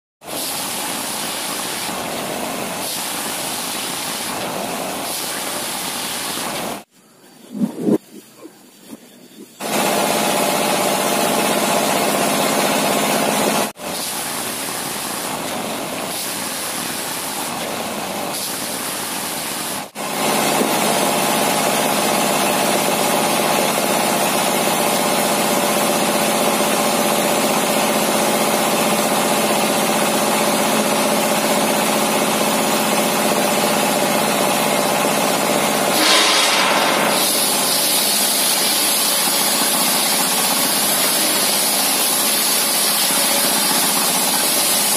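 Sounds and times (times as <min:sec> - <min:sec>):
saw cutting timber hiss: 0:00.3 - 0:06.9, 0:35.8 - 0:44.9.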